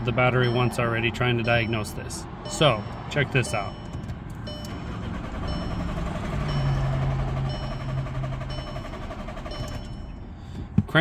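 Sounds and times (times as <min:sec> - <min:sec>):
starter motor cranking engine: 0:04.5 - 0:10.2.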